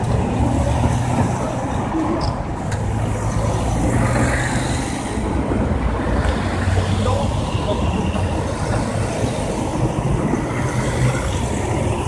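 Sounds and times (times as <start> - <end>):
cars driving past: 0.0 - 12.0
tyre noise on road: 0.0 - 12.0.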